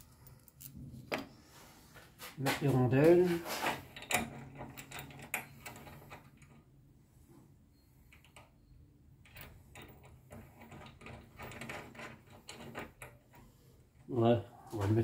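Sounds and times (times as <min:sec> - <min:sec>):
small metal parts clicking: 0:00.0 - 0:00.8.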